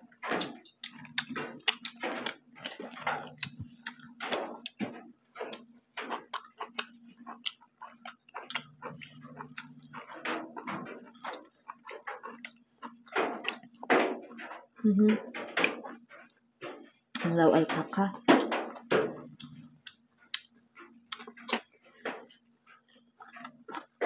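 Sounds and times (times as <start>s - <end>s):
faint low hum: 0.0s - 24.0s
chewing and lip smacks: 0.1s - 13.9s, 18.7s - 24.0s.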